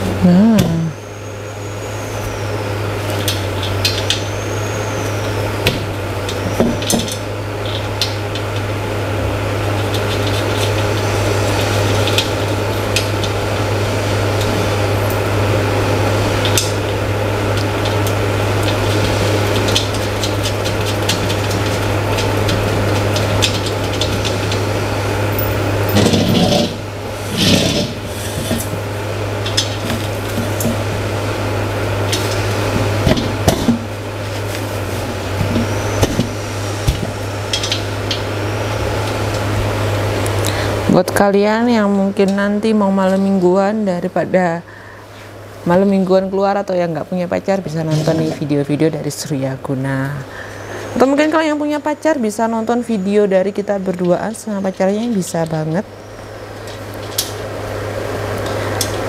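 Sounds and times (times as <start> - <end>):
steady low hum: 0.0 - 59.0.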